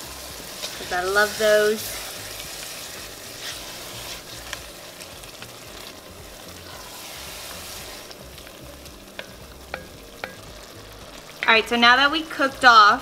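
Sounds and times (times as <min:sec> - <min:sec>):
chili sizzling in a pot: 0:00.0 - 0:13.0
wooden spatula scraping a pot: 0:00.5 - 0:08.2.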